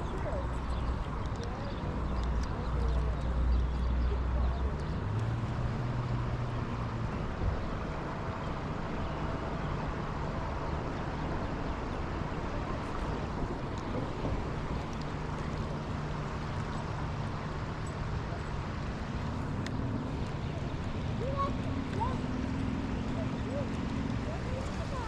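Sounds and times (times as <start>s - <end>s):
river water rushing: 5.0s - 25.0s.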